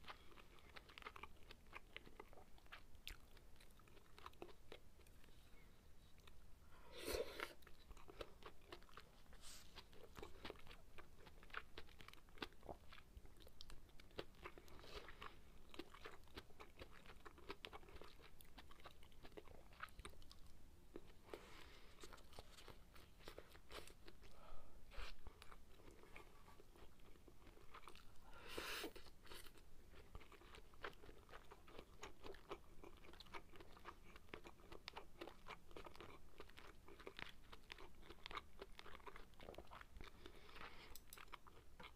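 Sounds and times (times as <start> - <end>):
close chewing and mouth sounds: 0.0 - 41.9.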